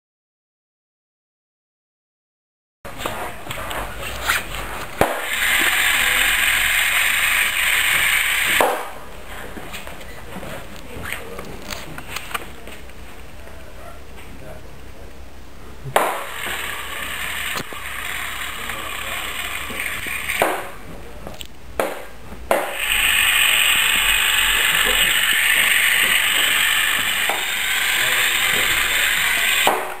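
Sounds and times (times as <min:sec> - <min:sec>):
small motors whirring: 0:03.0 - 0:09.0, 0:16.2 - 0:20.8, 0:22.6 - 0:30.0.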